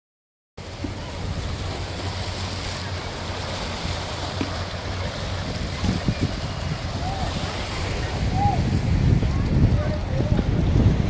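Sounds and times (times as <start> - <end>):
waves washing over rocky shore: 0.6 - 11.0
wind rumbling on microphone: 0.6 - 11.0.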